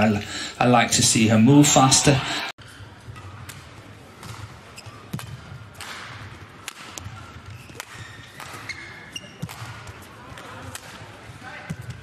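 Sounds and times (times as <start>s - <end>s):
low hall hum: 0.0s - 4.2s
shoe squeaks: 7.2s - 9.4s.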